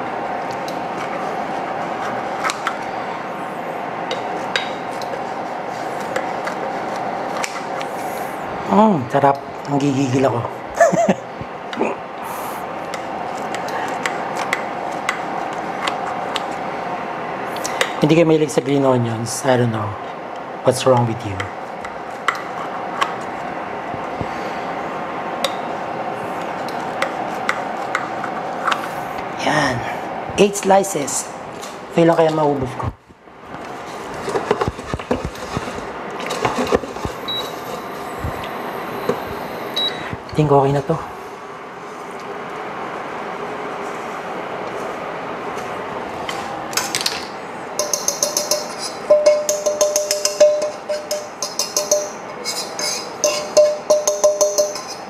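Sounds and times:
steady hum: 0.0 - 55.0
blades and plate clinking: 47.8 - 55.0.

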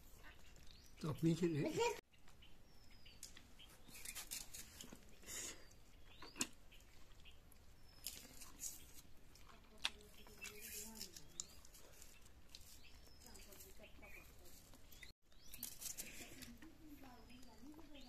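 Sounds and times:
person chewing: 6.0 - 12.9.

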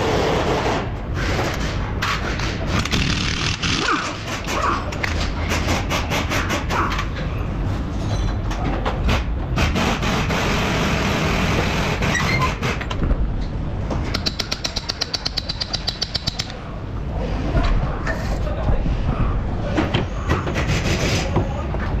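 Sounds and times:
rapid rattling taps: 14.1 - 16.5.

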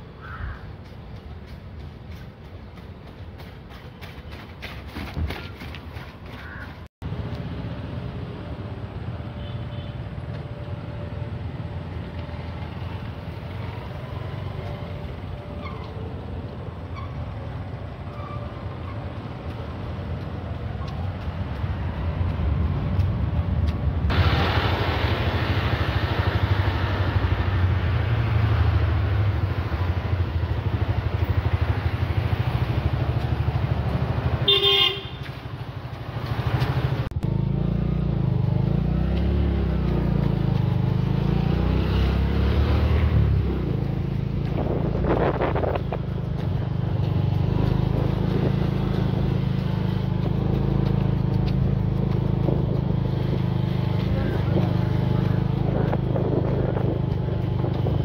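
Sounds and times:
vehicle engine running: 29.3 - 58.0
short horn toot: 34.5 - 35.2.

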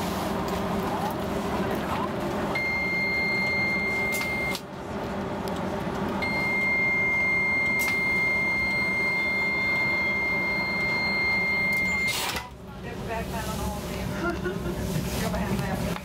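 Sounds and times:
low train hum: 0.0 - 16.0
train door warning beep: 2.6 - 4.6, 6.2 - 12.5.

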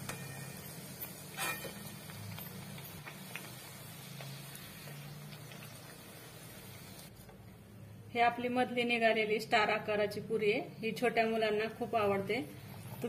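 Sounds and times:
food deep-frying in hot oil: 0.0 - 7.2
small crackles: 1.0 - 7.1.

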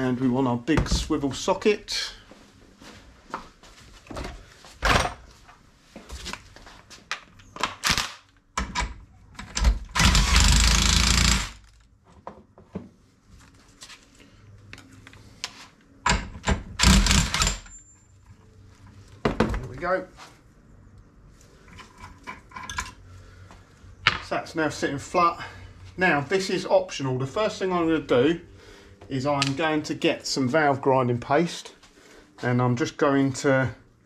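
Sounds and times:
impact wrench hammering: 9.9 - 11.7, 16.1 - 17.7.

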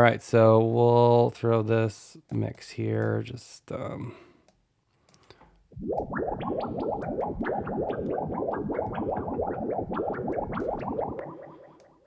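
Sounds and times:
synthesized water droplet blips: 5.8 - 12.0.

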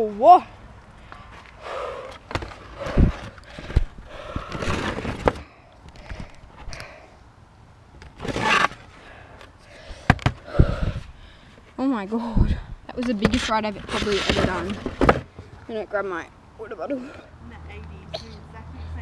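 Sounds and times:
heavy out-of-breath breathing: 0.9 - 7.3, 8.9 - 12.9
camera handling knocks and rubbing: 10.0 - 10.4, 13.0 - 15.6.

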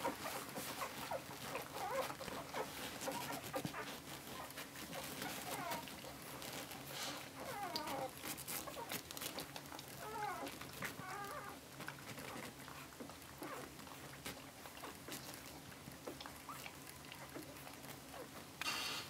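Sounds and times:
puppies squeaking: 0.0 - 12.5
rustling on bedding: 0.0 - 18.6.

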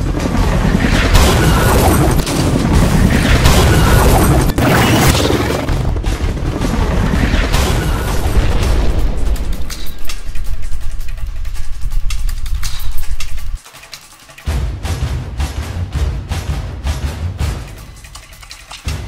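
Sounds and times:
booming explosions: 0.0 - 12.6
dramatic action music: 0.0 - 19.0.

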